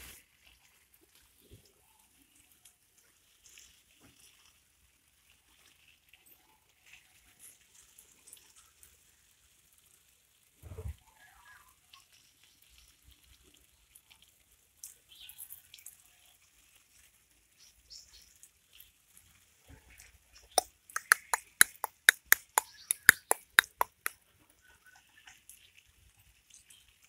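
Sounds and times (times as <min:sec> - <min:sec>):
fast sharp clicks: 0:20.5 - 0:24.1.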